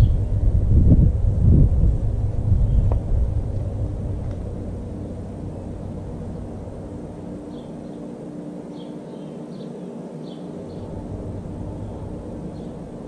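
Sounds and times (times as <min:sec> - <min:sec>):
low mechanical hum: 0:00.0 - 0:13.0
faint bird chirps: 0:08.7 - 0:10.9.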